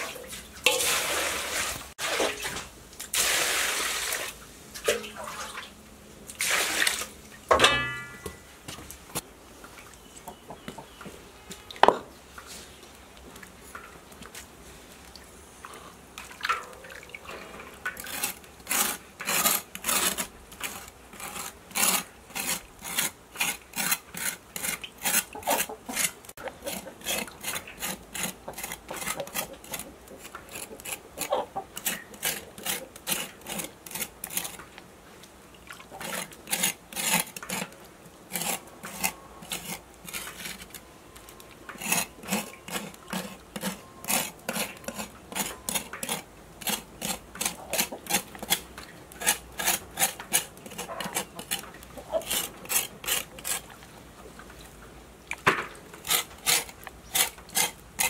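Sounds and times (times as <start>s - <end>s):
cleaver scraping skin: 18.0s - 34.6s, 36.0s - 40.8s, 41.8s - 48.6s, 49.2s - 53.7s, 56.0s - 58.0s.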